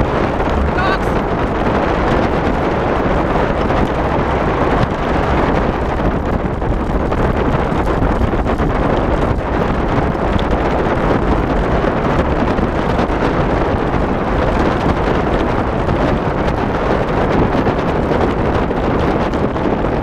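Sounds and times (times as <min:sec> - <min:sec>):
low rumble: 0:00.0 - 0:08.7
wind rushing over microphone: 0:00.0 - 0:20.0.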